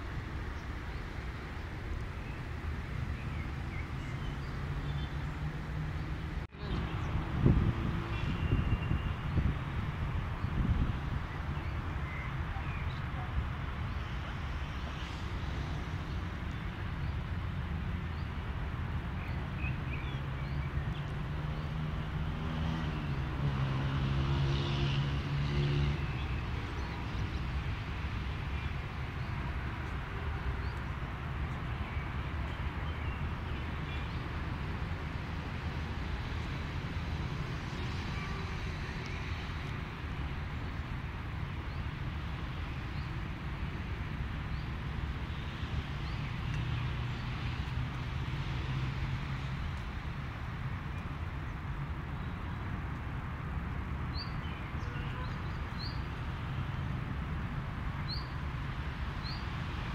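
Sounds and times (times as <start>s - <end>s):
traffic rumble: 0.0s - 59.9s
vehicle engine passing: 21.2s - 26.2s.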